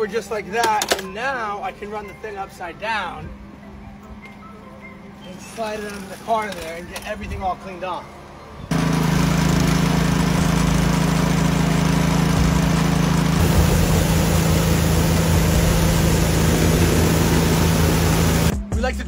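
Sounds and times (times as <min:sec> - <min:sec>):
pressure washer motor hum: 0:08.7 - 0:18.5
high-pressure water hiss: 0:13.4 - 0:18.5.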